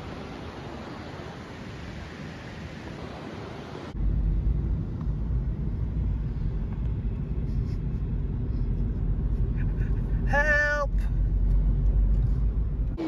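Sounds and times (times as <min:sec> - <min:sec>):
wind and road noise: 0:00.0 - 0:13.0
deep rumble of car cabin: 0:04.0 - 0:13.0.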